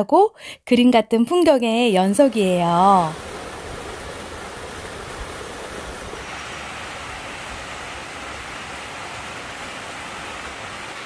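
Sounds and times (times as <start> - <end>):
water rushing over waterfalls: 2.4 - 11.0.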